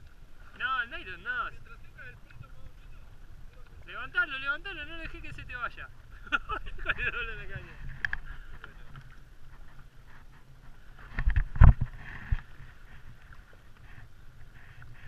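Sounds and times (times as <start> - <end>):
water lapping around kayak: 0.0 - 15.0
wind on microphone: 4.7 - 15.0.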